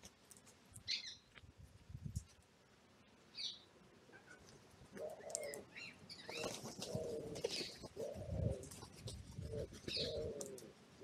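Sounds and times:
high songbird chirps: 0.8s - 1.3s, 3.3s - 3.7s
low bird calls: 3.4s - 8.8s, 9.4s - 10.7s
crows flapping wings: 6.2s - 10.8s.

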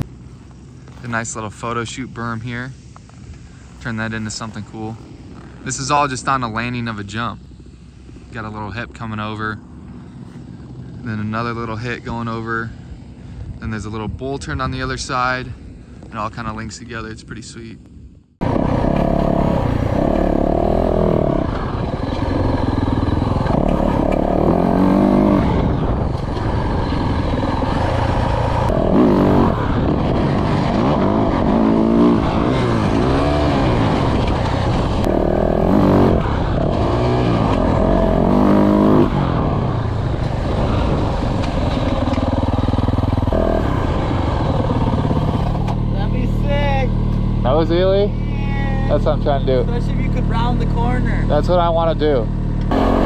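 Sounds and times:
dirt bike engine revving: 18.4s - 53.0s.

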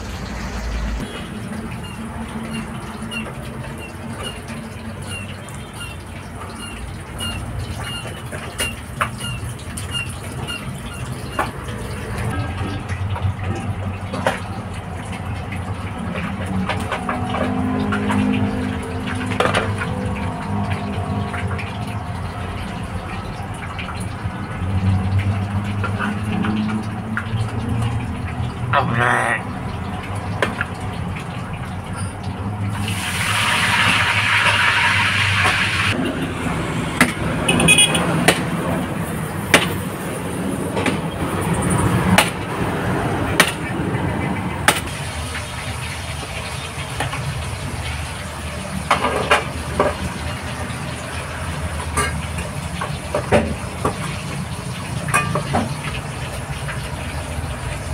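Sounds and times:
fish sizzling in hot oil: 0.0s - 28.7s, 29.6s - 57.9s
road traffic passing: 0.0s - 57.9s
oil sizzling in a frying pan: 29.6s - 36.0s, 44.8s - 57.9s.

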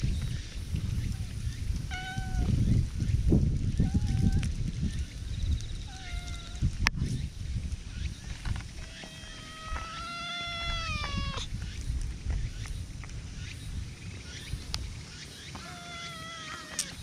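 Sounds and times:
cat meowing: 1.9s - 2.6s, 3.8s - 4.4s, 5.9s - 6.6s, 8.8s - 11.5s, 15.6s - 17.0s.

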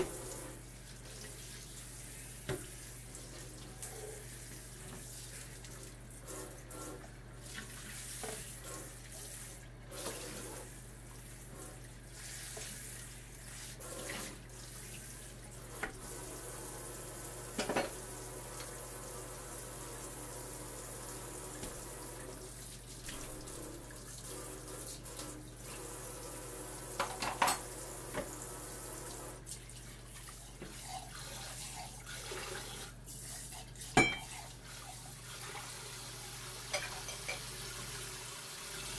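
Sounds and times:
tap running into a sink: 2.4s - 2.8s, 15.7s - 16.0s, 17.5s - 18.0s, 21.5s - 21.9s, 27.0s - 28.4s
dishes clinking: 17.6s - 18.0s, 27.0s - 27.7s, 34.0s - 34.4s, 36.7s - 37.5s.

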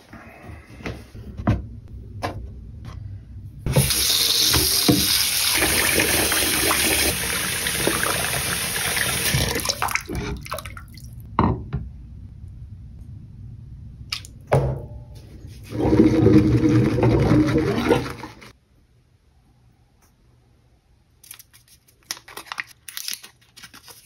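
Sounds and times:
tap water running into bowl: 3.7s - 11.0s.

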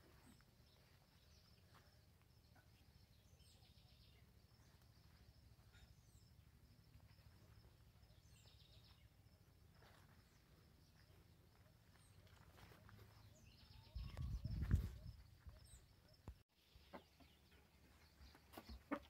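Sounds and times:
faint bird chirps: 0.1s - 19.0s
wind rumble on microphone: 13.8s - 15.6s.

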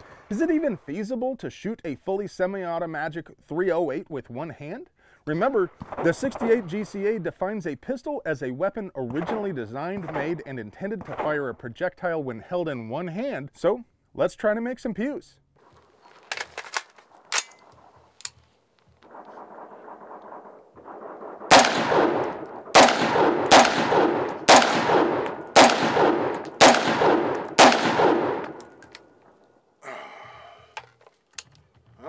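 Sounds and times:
loud gunshots with echo: 19.1s - 28.8s
metallic handling clicks: 25.2s - 25.7s, 26.3s - 27.7s, 28.3s - 29.1s.

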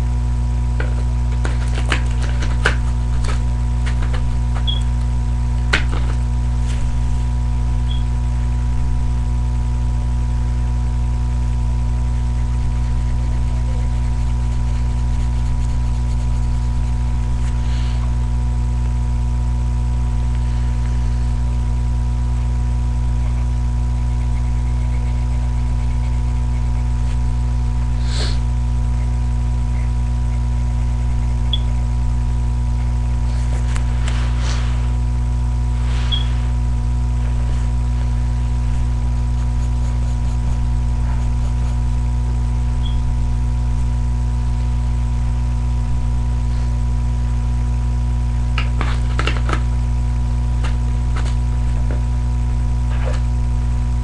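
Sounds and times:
electrical hum: 0.0s - 54.0s
faint clicks and scratches: 0.8s - 4.7s, 12.1s - 17.6s, 23.2s - 27.3s.

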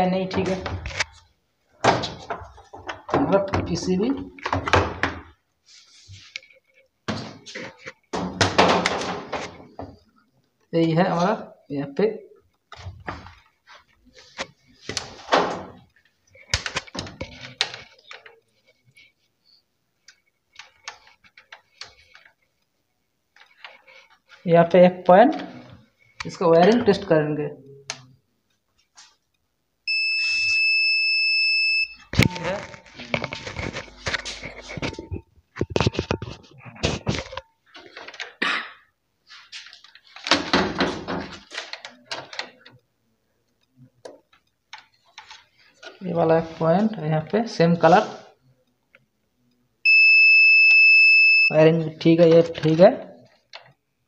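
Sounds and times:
wires knocking and scraping on plastic: 32.2s - 38.4s.

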